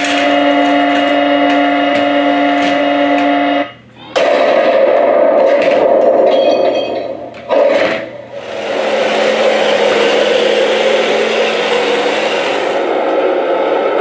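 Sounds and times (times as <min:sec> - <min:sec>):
toy tank motors whining: 0:00.0 - 0:03.4, 0:07.8 - 0:13.2.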